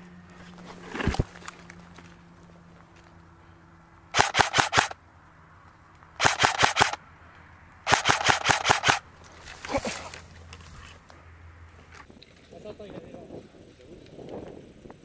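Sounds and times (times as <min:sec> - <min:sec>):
airsoft rifle rapid shots: 0:04.1 - 0:05.0, 0:06.2 - 0:07.0, 0:07.8 - 0:09.1.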